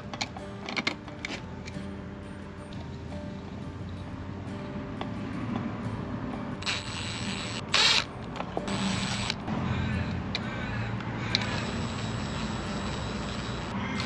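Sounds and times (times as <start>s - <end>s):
cordless drill running: 6.6s - 8.1s, 8.7s - 9.4s, 11.3s - 14.0s.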